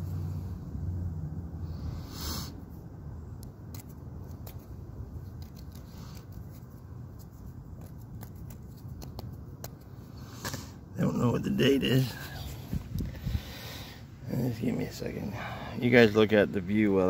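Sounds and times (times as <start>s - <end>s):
steady low rumble: 0.0s - 17.0s
fingers rubbing coin: 5.3s - 9.8s.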